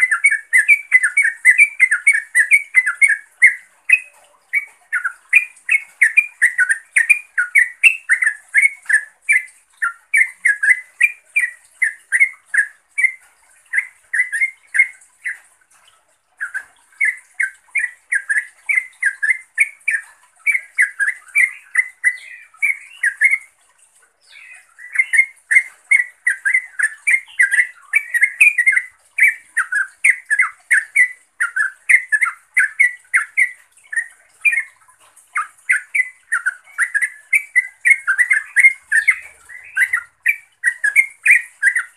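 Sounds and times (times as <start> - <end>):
bulbul chattering call: 35.4 - 41.9.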